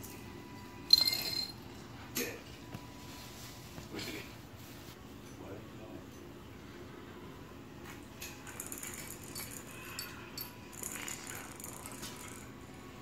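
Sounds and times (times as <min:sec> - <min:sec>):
cat toys rattling on tile floor: 0:00.9 - 0:01.6, 0:08.2 - 0:12.6.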